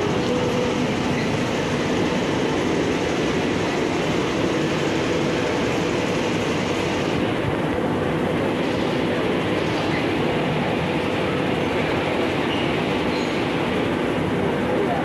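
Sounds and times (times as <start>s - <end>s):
metro platform din: 0.0s - 15.0s.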